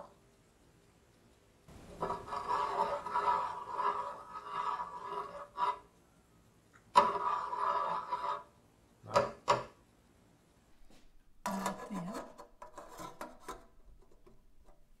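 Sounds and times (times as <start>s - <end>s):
spoon scraping saucepan: 1.9s - 5.9s, 6.9s - 8.6s, 11.4s - 14.8s.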